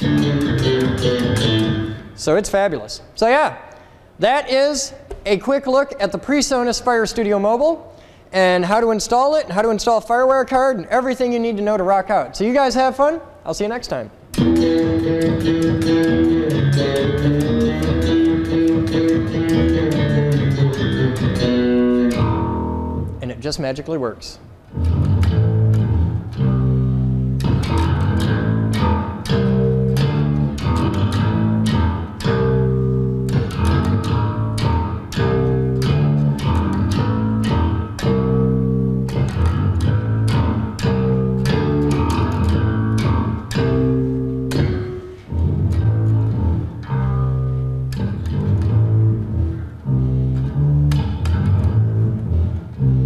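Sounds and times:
electric bass guitar riff: 0.0s - 2.2s, 14.2s - 23.3s, 24.7s - 53.0s.

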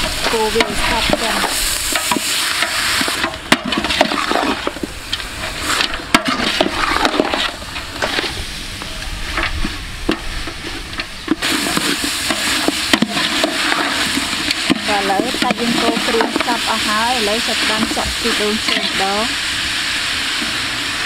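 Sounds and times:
meat sizzling in a pot: 0.0s - 21.0s
metal utensil scraping a pot: 10.1s - 19.2s.

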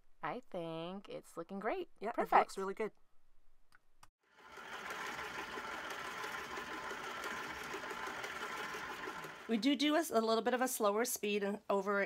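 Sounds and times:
stand mixer motor whining: 4.3s - 9.6s.

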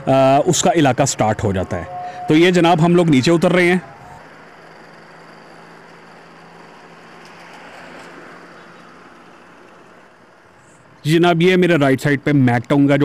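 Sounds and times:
low motorcycle engine hum: 0.0s - 7.6s
wind and road hiss: 2.3s - 13.0s.

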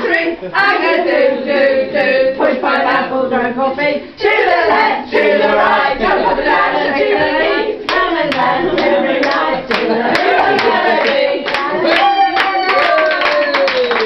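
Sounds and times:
group of people singing: 0.0s - 12.3s
hand claps: 7.9s - 14.0s.

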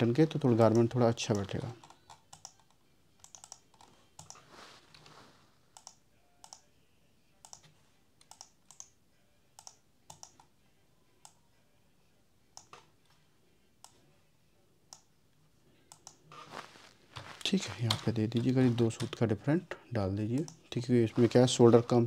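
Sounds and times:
keyboard and mouse clicks: 0.6s - 4.4s, 5.8s - 6.6s, 7.4s - 9.0s, 9.6s - 10.5s.

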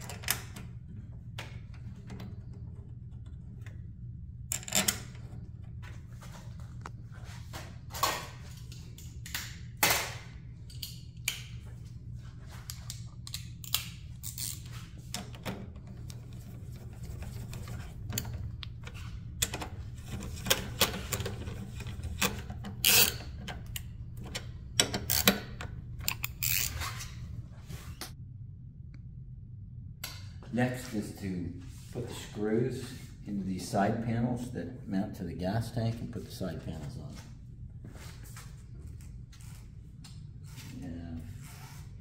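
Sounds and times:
socket ratchet clicking: 22.2s - 26.8s.

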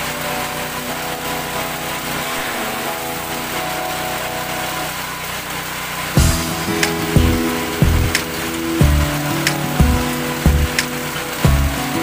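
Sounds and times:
chaff cutter engine running: 5.3s - 10.8s.

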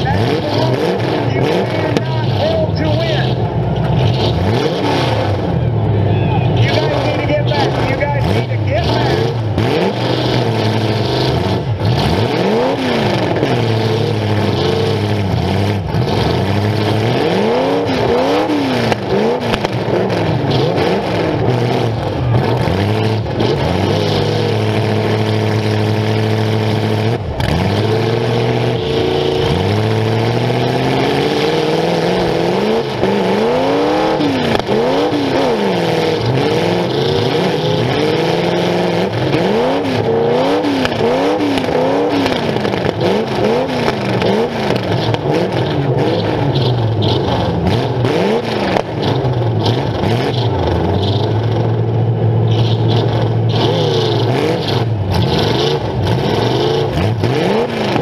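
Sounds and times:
car engine revving: 0.0s - 58.0s.

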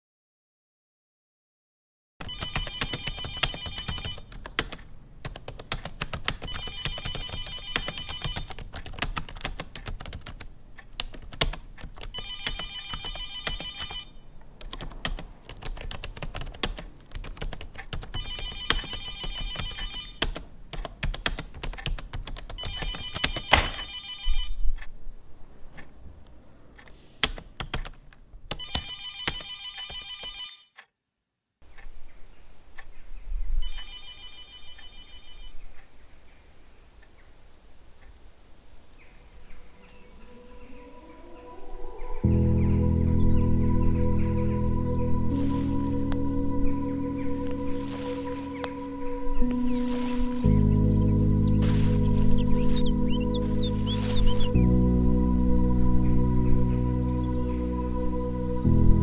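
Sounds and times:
telephone ringing: 2.2s - 4.3s, 6.4s - 8.6s, 12.1s - 14.2s, 18.2s - 20.2s, 22.6s - 24.6s, 28.6s - 30.8s, 33.6s - 35.6s
keyboard typing: 2.2s - 24.5s, 26.8s - 30.9s.

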